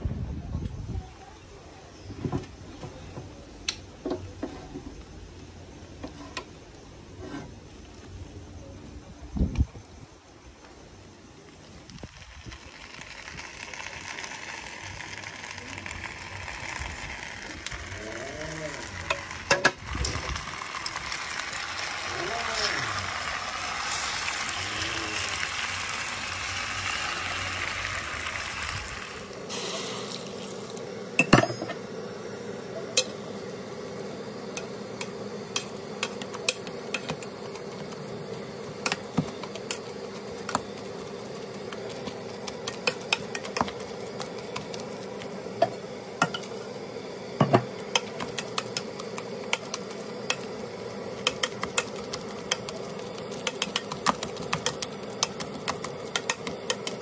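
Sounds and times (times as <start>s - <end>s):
sausages sizzling: 10.5s - 57.0s
steady hum: 27.9s - 57.0s
tongs stirring: 32.9s - 46.7s, 47.4s - 57.0s
potato masher clinking on metal pot: 51.2s - 57.0s.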